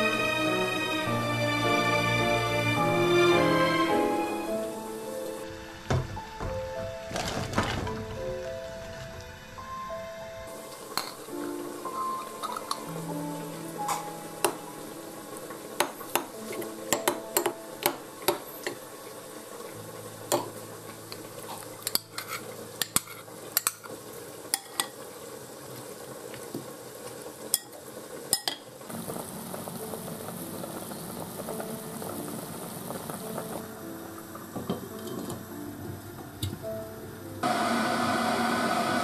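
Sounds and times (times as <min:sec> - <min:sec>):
pot of broth bubbling: 0:10.6 - 0:35.5.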